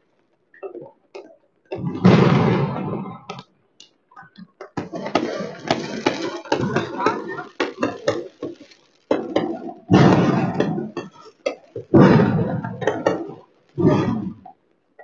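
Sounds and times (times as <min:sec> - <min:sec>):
fireworks bangs and crackles: 0:00.1 - 0:03.5, 0:04.4 - 0:14.5
loud firework blasts rumbling: 0:01.7 - 0:03.4, 0:04.8 - 0:14.5.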